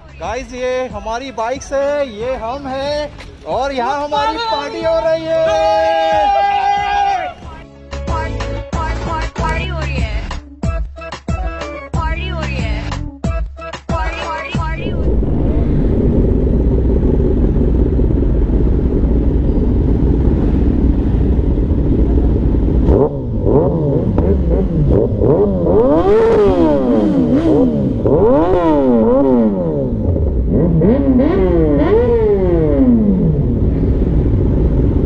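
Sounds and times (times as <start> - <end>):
motorcycle engines rumbling: 14.6 - 35.0
motorcycle engine revving: 14.8 - 34.9.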